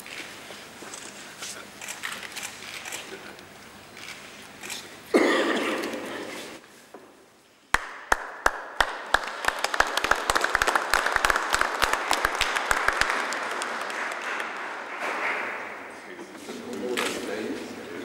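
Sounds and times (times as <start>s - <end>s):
audience applauding: 7.7s - 15.9s.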